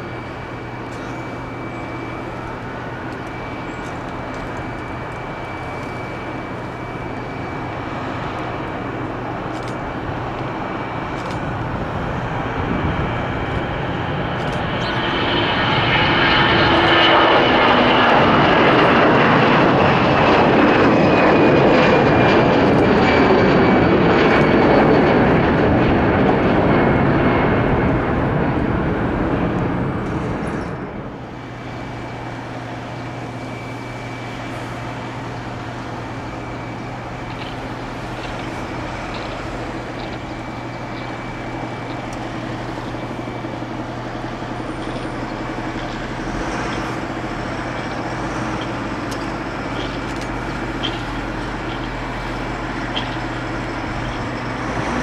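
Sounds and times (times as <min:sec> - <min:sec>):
jet engines roaring: 0:00.0 - 0:55.0
turboprop drone: 0:00.0 - 0:55.0.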